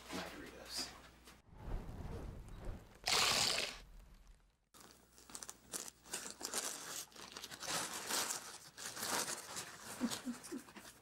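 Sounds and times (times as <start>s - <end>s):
plastic crinkling: 4.2s - 10.9s.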